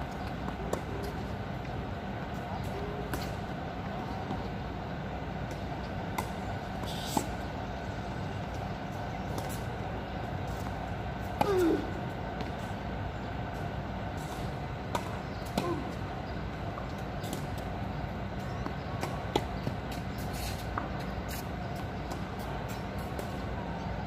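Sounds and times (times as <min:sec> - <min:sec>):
steady background hum: 0:00.0 - 0:24.0
tennis balls struck and bouncing: 0:00.2 - 0:01.4, 0:13.5 - 0:23.4.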